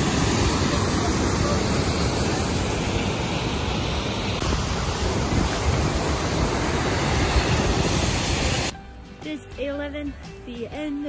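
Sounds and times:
water rushing over boulders: 0.0s - 8.7s.

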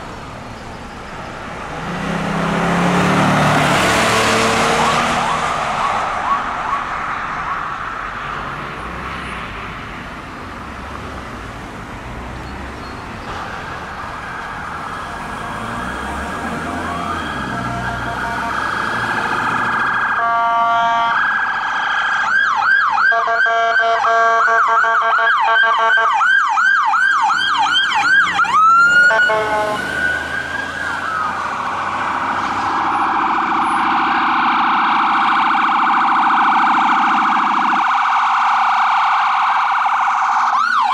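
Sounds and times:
emergency siren wailing: 0.8s - 9.4s, 13.6s - 40.9s
siren yelp: 3.5s - 8.2s, 13.8s - 40.9s
vehicle horn blast: 17.5s - 18.6s, 20.2s - 21.2s, 23.1s - 26.1s, 29.1s - 29.9s.

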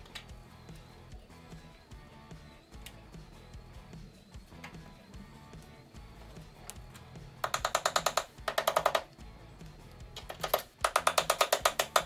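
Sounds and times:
ratcheting clicks: 10.2s - 12.0s.

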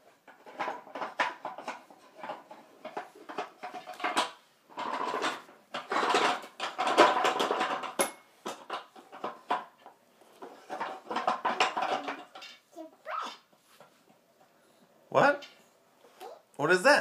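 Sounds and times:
wooden toy pieces clattering: 0.3s - 9.8s, 10.4s - 12.6s.

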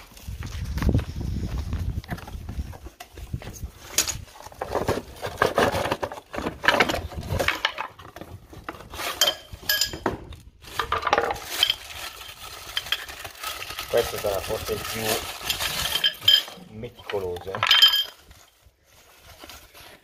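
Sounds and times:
plastic parts clattering on stone: 3.8s - 18.6s
packaging rustling: 10.5s - 20.0s.

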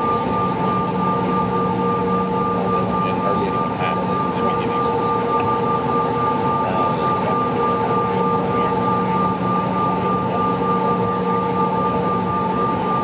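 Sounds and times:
jet engine cabin rumble: 0.0s - 13.0s.

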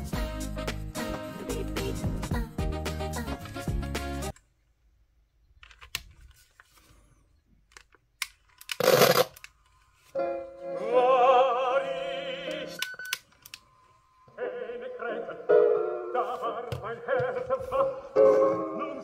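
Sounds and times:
vibrato singing with accompaniment: 10.7s - 12.8s.

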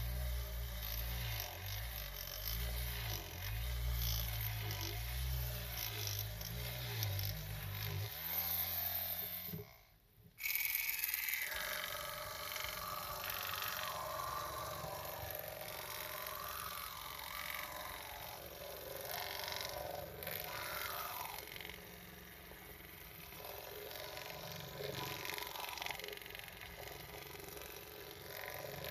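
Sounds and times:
wavering motor whine: 0.0s - 9.8s, 10.4s - 28.9s
small motor buzzing: 0.0s - 28.9s.

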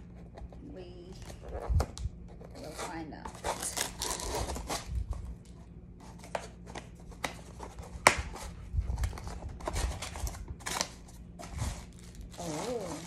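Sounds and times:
cardboard box tape pulled apart: 3.4s - 4.9s.

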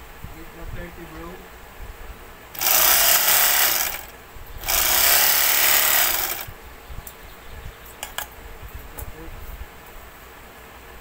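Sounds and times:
overlock machine running: 2.6s - 6.5s.

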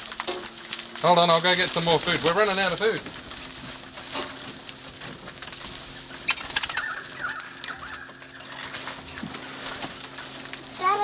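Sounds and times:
parrots fluttering: 5.1s - 10.6s
parrots chirping: 5.9s - 9.0s.

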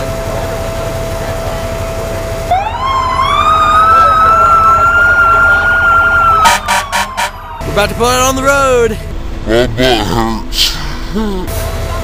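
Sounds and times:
idling engines rumble: 0.0s - 12.0s
fire engine siren: 2.3s - 7.8s.

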